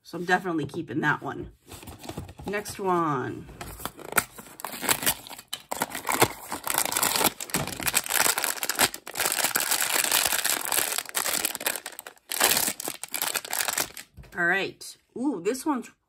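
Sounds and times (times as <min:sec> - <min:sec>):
foil bag crinkling: 0:04.0 - 0:14.1.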